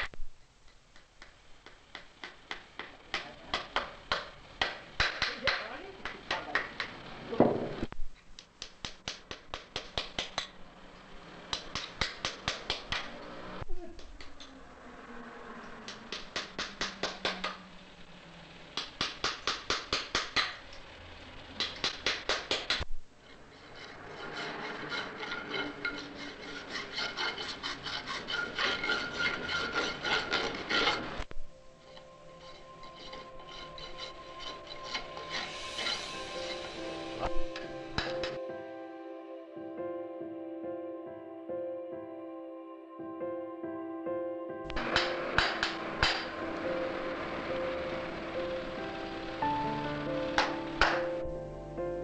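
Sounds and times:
rasp filing a hoof: 23.2s - 31.2s, 31.8s - 37.3s.

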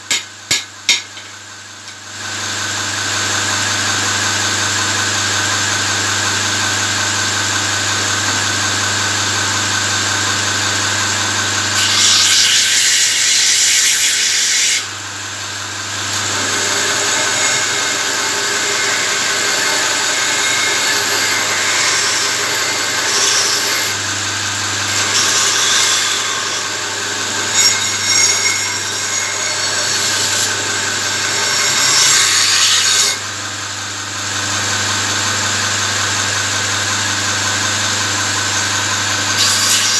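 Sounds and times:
steel grinding on belt: 11.8s - 14.9s, 16.1s - 24.1s, 24.8s - 33.2s, 39.3s - 39.9s.

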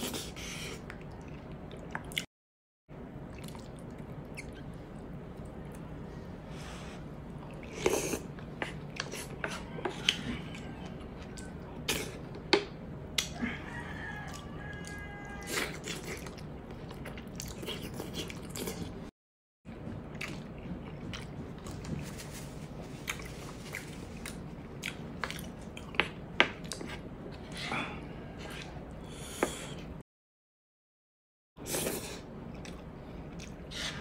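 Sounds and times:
chewing and wet mouth smacking: 3.3s - 4.8s, 14.2s - 19.0s, 19.8s - 22.0s, 23.0s - 27.0s, 32.4s - 33.6s.

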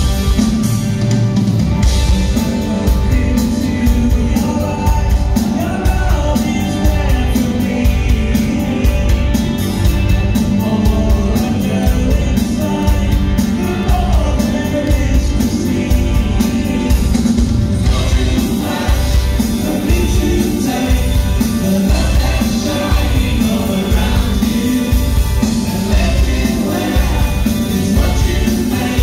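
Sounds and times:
heavy pulsing bass: 0.0s - 29.0s
rock band playing: 0.0s - 29.0s.

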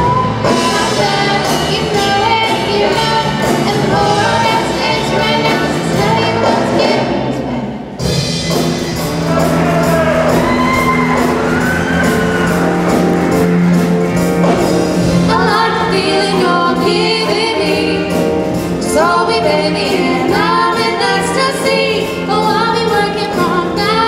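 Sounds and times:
instrumental music: 0.0s - 24.0s
woman singing into a microphone: 15.3s - 24.0s.

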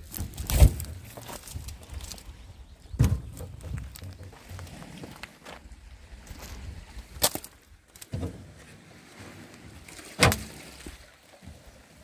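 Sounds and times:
footsteps crunching on dry reeds: 0.0s - 2.5s.

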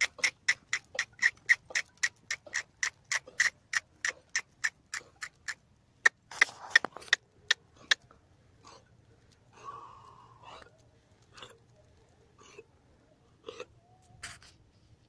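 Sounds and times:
rapid tongue clicks: 0.0s - 8.1s.

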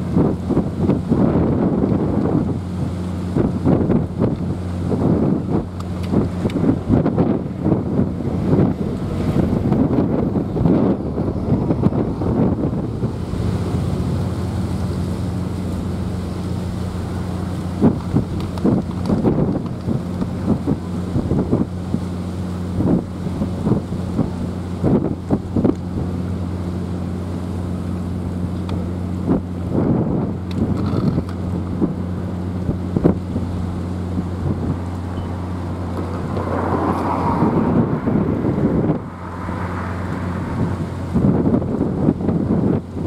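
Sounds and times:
steady low hum: 0.0s - 36.8s
wind buffeting microphone: 0.0s - 43.0s
rushing noise: 34.2s - 41.8s.

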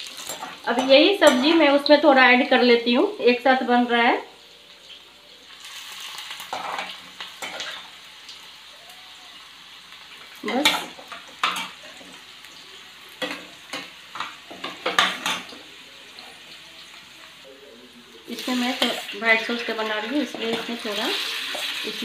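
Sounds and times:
vegetables sizzling in oil: 0.0s - 22.0s
metal spatulas scraping pans: 6.5s - 7.8s.

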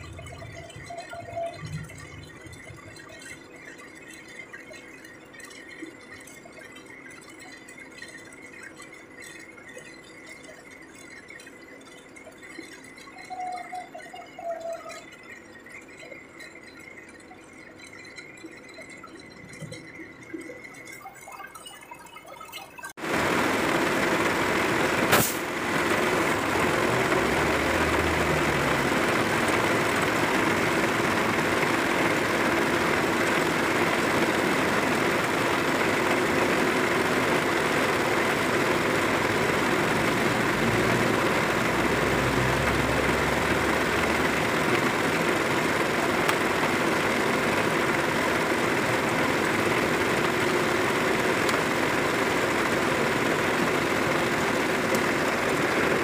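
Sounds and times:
diesel truck engine running: 23.0s - 56.0s.

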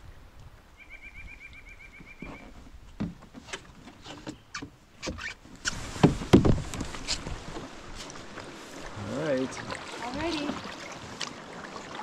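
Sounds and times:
paddle splashing in water: 1.9s - 12.0s
paddle knocking on canoe hull: 3.0s - 3.4s, 6.0s - 8.9s.

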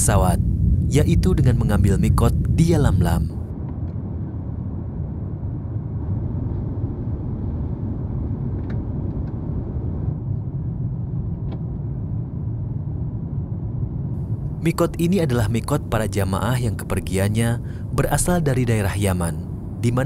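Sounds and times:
airliner cabin engine rumble: 0.0s - 20.0s.

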